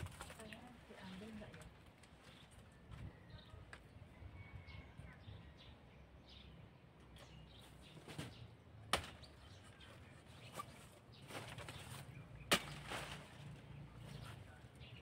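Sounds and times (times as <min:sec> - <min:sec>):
machete chopping banana stalk: 0:08.9 - 0:09.3, 0:12.4 - 0:13.4.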